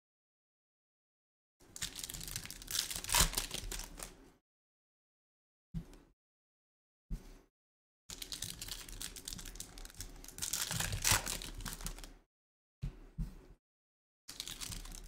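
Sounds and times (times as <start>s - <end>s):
foil wrapper crinkling and tearing: 1.8s - 4.1s, 8.1s - 12.2s, 14.3s - 15.0s.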